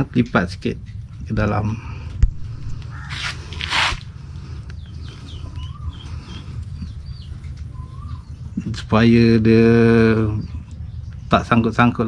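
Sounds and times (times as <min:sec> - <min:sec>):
steady low hum: 0:00.0 - 0:12.0
netting rustling swishes: 0:03.1 - 0:04.1
high bird chirps: 0:04.7 - 0:08.8.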